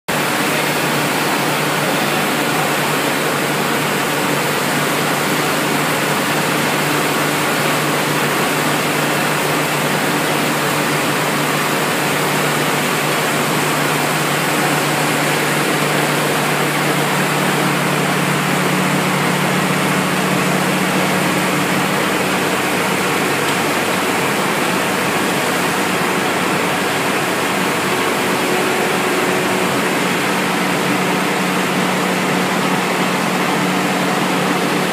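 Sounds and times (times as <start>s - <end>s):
machinery rushing noise: 11.0s - 34.9s.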